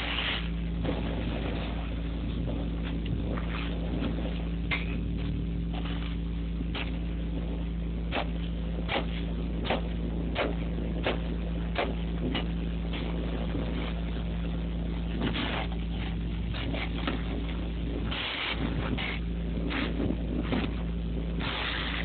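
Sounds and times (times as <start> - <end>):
vacuum hose sucking sand: 21.4 - 22.0.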